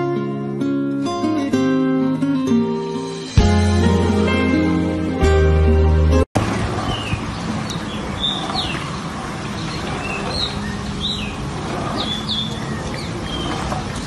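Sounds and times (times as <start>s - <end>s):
small birds chirping: 6.8s - 14.0s.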